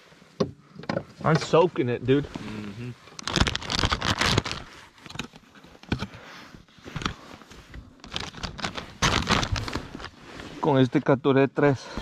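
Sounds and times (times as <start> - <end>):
rustling and scraping handling noise: 0.0 - 12.0.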